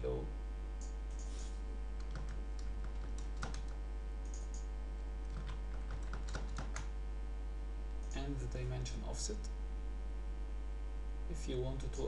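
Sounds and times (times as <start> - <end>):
low electrical hum: 0.0 - 12.0
keyboard and mouse clicks: 2.0 - 4.7, 5.3 - 6.9.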